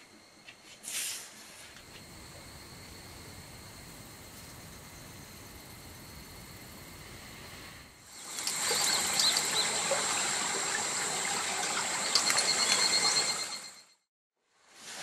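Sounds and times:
insects chirring: 0.0s - 14.0s
stream water running: 7.1s - 13.8s.

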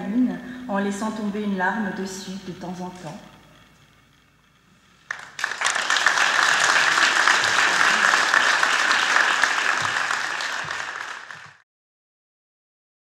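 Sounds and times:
audience applause: 5.1s - 11.6s.

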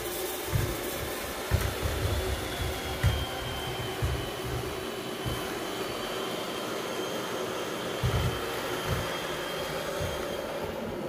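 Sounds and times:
robot vacuum motor whir: 0.0s - 11.0s
low thumps: 0.5s - 6.1s, 8.0s - 10.5s.

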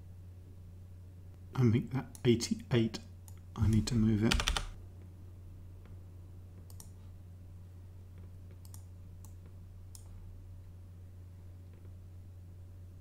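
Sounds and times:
steady low hum: 0.0s - 13.0s
computer mouse clicking: 6.6s - 7.0s, 8.5s - 10.2s.

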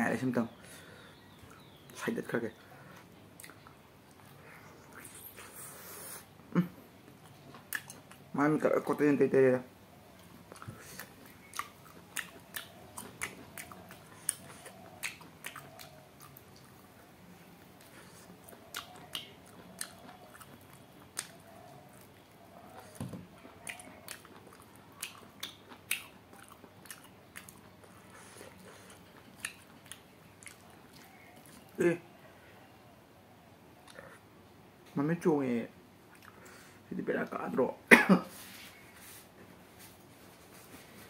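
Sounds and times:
teeth clicks: 7.1s - 8.2s, 10.5s - 16.7s, 17.8s - 31.7s
chewing and biting meat: 10.2s - 17.0s, 17.8s - 31.7s.

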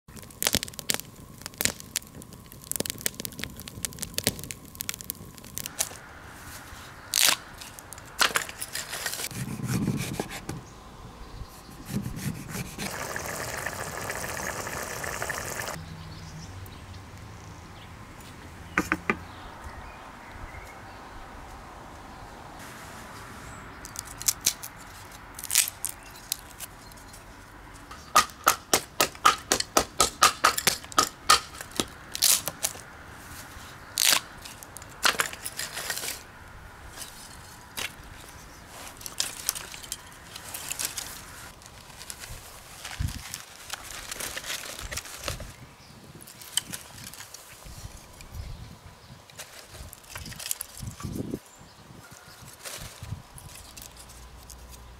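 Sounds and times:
campfire crackling: 0.1s - 9.3s, 12.1s - 15.8s.

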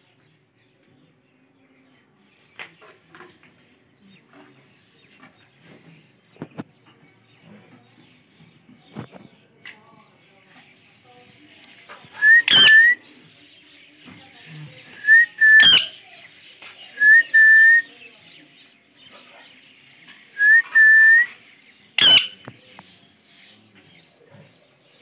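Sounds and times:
parakeet sharp calls: 12.4s - 13.0s, 15.6s - 16.0s, 22.0s - 22.4s.

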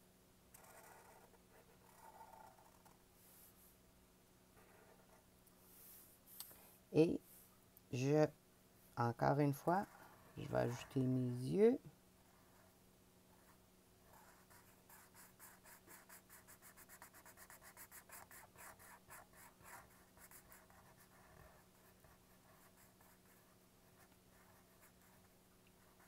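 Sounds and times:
marker scratching on paper: 0.6s - 3.0s, 13.4s - 26.0s.

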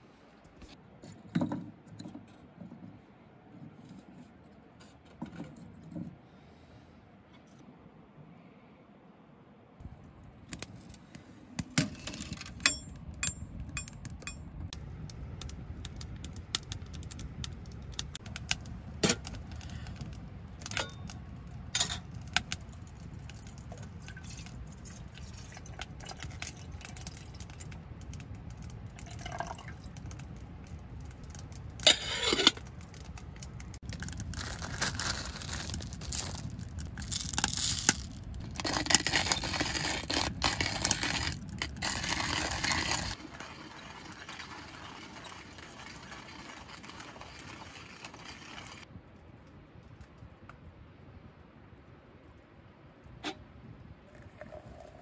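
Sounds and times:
wood fire crackling and popping: 10.4s - 50.7s
water pouring into kettle: 40.8s - 48.8s.

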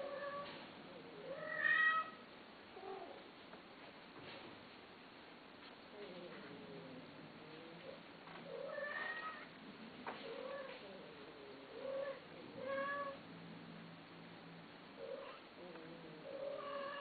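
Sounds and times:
cat meowing: 1.3s - 2.2s, 8.5s - 9.5s, 16.3s - 17.0s.

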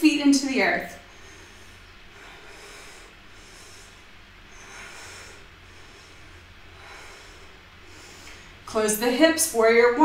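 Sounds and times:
low hum: 0.0s - 10.0s
woman breathing slowly: 0.9s - 8.7s.

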